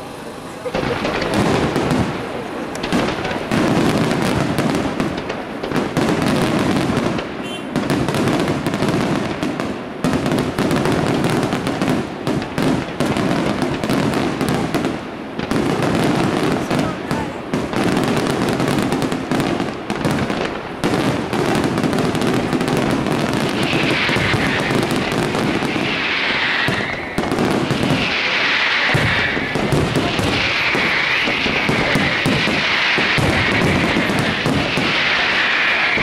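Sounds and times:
fireworks crackling: 0.0s - 36.0s
fireworks hissing: 0.0s - 36.0s
firework shell bursts: 22.6s - 36.0s.

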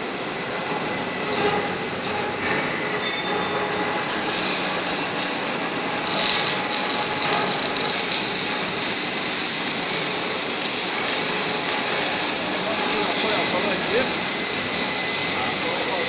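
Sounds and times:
steady high hiss: 2.9s - 16.0s
electric motor and gearbox running: 3.3s - 16.0s.

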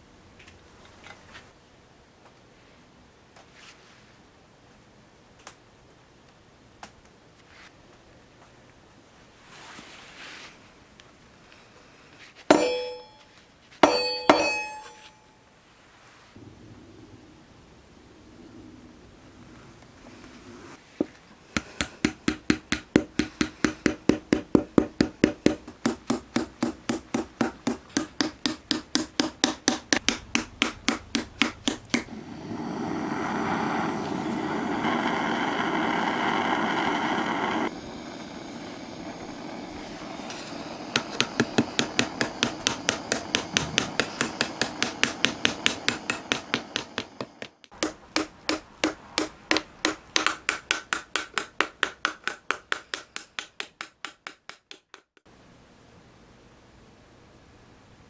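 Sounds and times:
hammer tapping metal: 12.5s - 15.2s, 21.6s - 32.1s, 40.9s - 55.2s
blowtorch hissing: 31.9s - 47.7s.

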